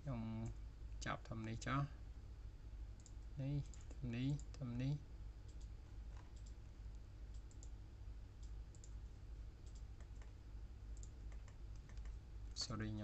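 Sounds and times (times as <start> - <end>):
low steady hum: 0.0 - 13.0
computer mouse clicks: 3.0 - 4.6, 5.4 - 6.6, 7.3 - 7.8, 8.4 - 9.0, 9.6 - 12.2.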